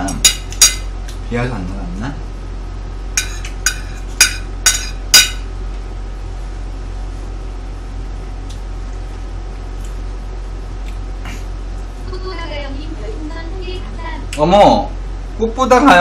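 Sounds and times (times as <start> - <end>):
steady electrical hum: 0.0 - 16.0
metal spoon clinking on plate: 0.1 - 0.9, 3.2 - 5.4.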